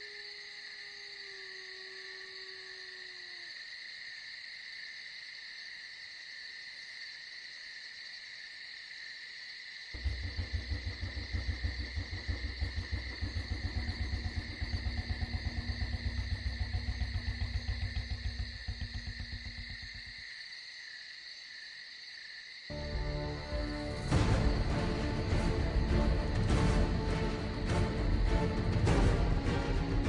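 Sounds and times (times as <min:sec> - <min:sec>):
crickets chirring: 0:00.0 - 0:30.0
low rhythmic pulsing: 0:10.0 - 0:20.2, 0:22.7 - 0:30.0.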